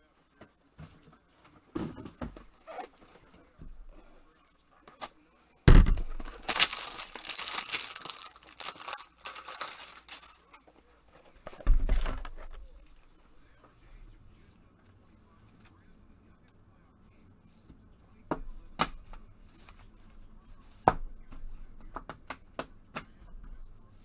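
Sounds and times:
packaging tearing and crinkling: 6.0s - 10.5s.

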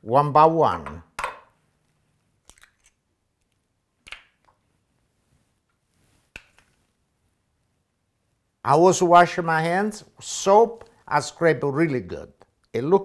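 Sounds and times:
eggs cracking on a bowl: 2.4s - 3.0s.

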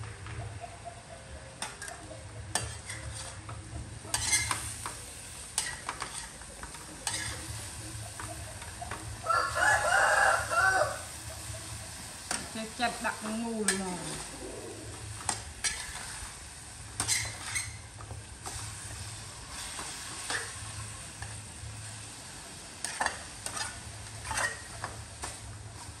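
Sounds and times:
light sizzle: 1.6s - 26.0s
metal spatula scraping a wok: 1.6s - 26.0s
rooster crowing: 9.2s - 11.5s.

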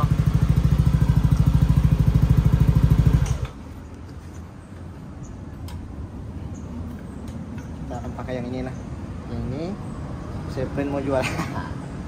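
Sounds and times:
scooter engine idling: 0.0s - 4.0s.

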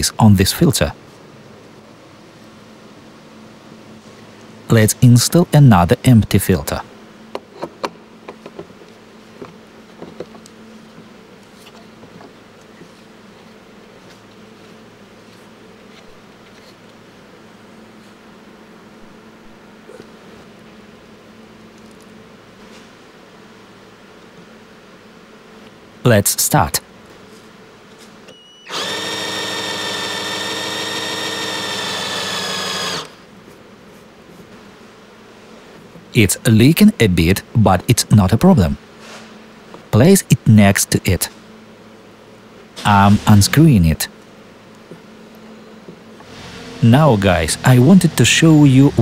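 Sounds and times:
low buzzing hum: 0.0s - 49.0s
electric motor whining: 28.6s - 33.2s.

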